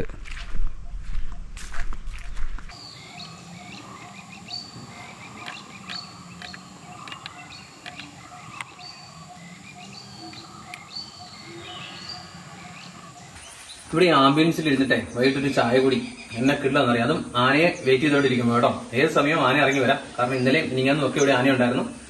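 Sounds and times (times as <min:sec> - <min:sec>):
footsteps: 0:00.0 - 0:02.8
high insect hum: 0:02.1 - 0:22.0
birds whistling: 0:02.7 - 0:13.8.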